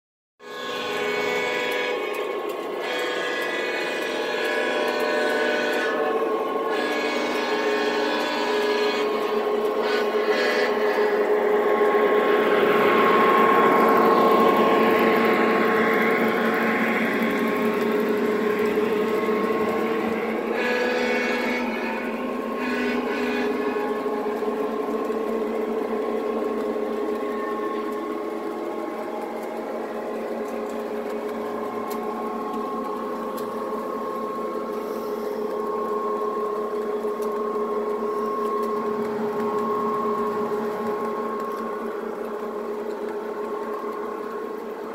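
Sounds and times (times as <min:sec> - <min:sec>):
model train wheels whirring: 0:00.4 - 0:44.9.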